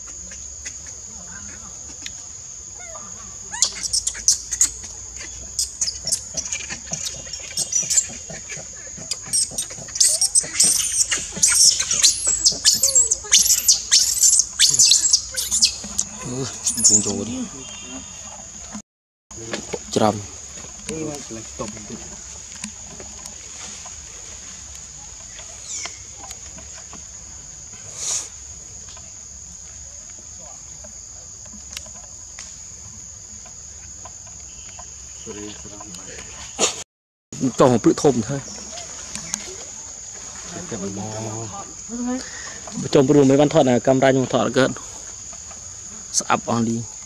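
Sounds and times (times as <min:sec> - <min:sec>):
high insect drone: 0:00.0 - 0:36.8, 0:37.4 - 0:47.0
baby monkey squealing: 0:02.8 - 0:17.2
short chirping call: 0:09.1 - 0:18.4.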